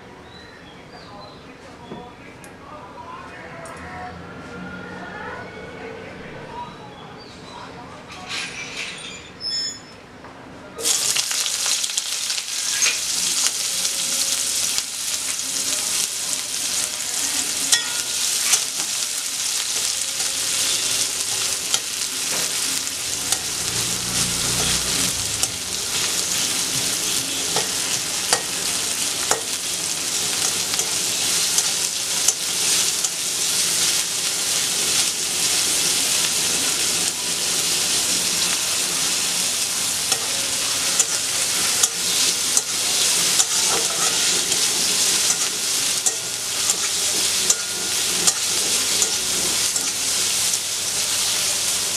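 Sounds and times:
onions sizzling in hot oil: 0:10.8 - 0:51.9
metal spatula scraping pan: 0:19.7 - 0:29.6, 0:40.0 - 0:50.2.

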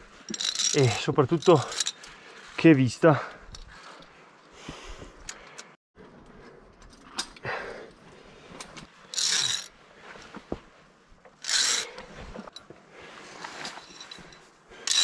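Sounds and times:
climbing gear clicks and scrapes: 0:00.2 - 0:02.6, 0:03.3 - 0:04.2, 0:08.6 - 0:10.6, 0:11.2 - 0:15.0.

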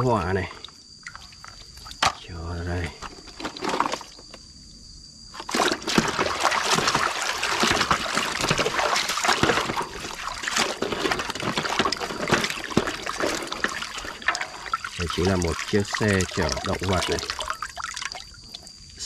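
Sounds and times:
water splashing in plastic basin: 0:05.4 - 0:18.8.

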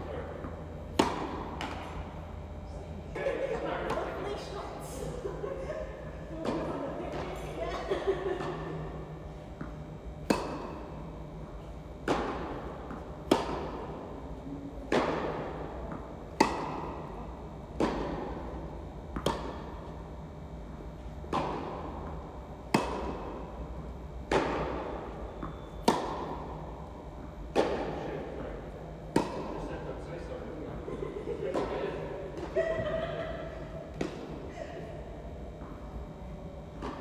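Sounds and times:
tennis ball hit by rackets: 0:00.4 - 0:02.0, 0:09.6 - 0:11.0, 0:12.0 - 0:14.2, 0:14.9 - 0:17.1, 0:17.8 - 0:19.8, 0:21.3 - 0:23.5, 0:24.3 - 0:26.6, 0:27.5 - 0:28.1, 0:29.1 - 0:29.6, 0:33.9 - 0:34.4.

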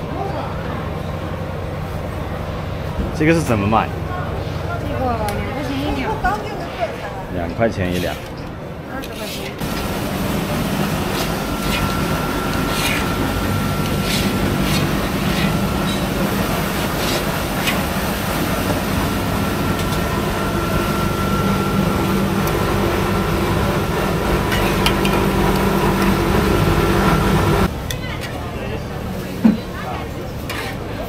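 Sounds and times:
machinery hum: 0:09.6 - 0:27.8.

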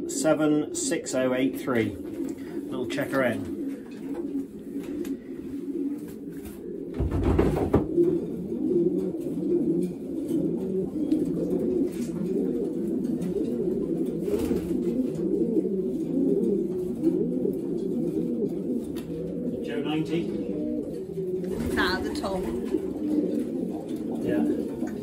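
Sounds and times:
pigeons cooing: 0:00.0 - 0:25.0
thump and rustle: 0:06.4 - 0:08.0.

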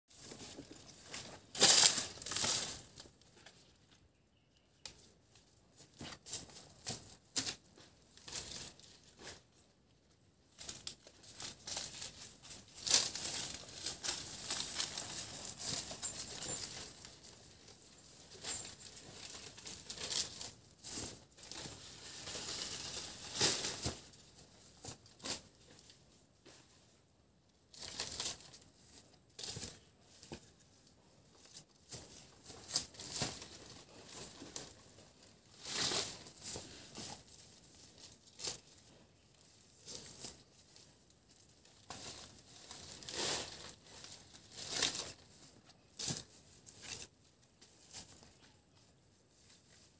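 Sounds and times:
dry leaves rustling and crackling: 0:00.1 - 0:03.2, 0:10.5 - 0:25.5, 0:31.8 - 0:48.5.

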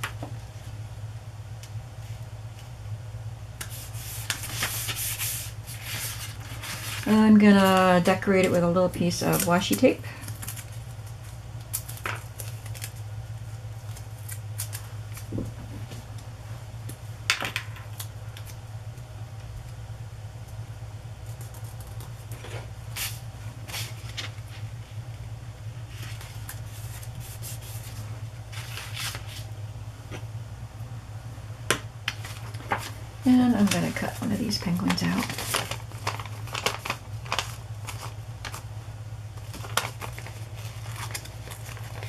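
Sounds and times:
steady low hum: 0:00.0 - 0:42.0
tape and paper rustling: 0:03.6 - 0:16.0, 0:21.2 - 0:24.8, 0:25.8 - 0:29.5, 0:32.1 - 0:38.7, 0:39.3 - 0:42.0.

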